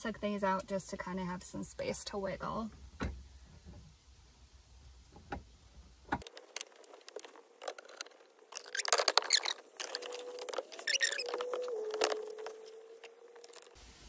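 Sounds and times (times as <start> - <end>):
squeaky plastic creaks: 6.1 - 13.8.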